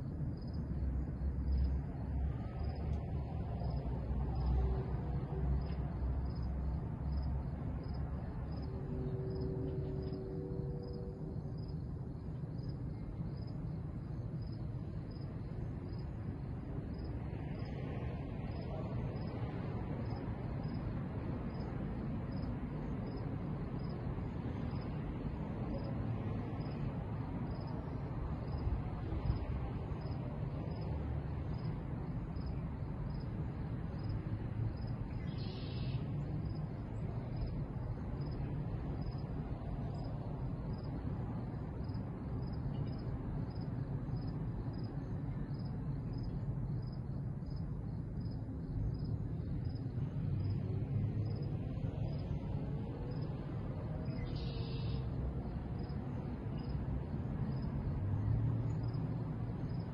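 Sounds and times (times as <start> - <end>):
low steady rumble: 0.0 - 17.7
crickets chirping: 0.0 - 59.9.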